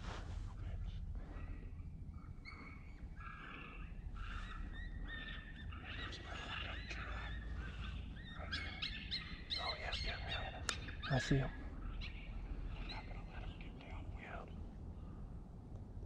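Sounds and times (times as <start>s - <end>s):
coyote yips and howls: 1.4s - 13.2s.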